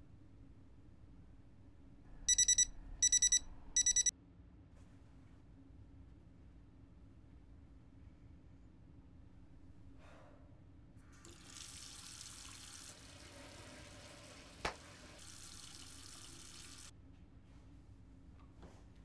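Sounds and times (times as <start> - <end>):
tap water running into sink: 11.2 - 16.9.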